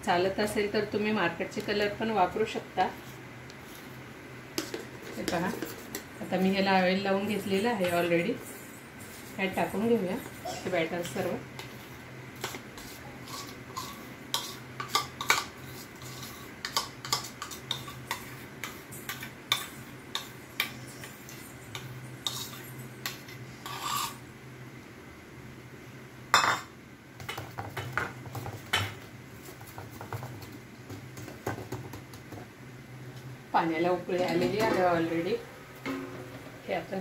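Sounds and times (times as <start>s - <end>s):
spoon scraping a steel bowl: 11.0s - 24.2s
low steady hum: 30.4s - 37.0s.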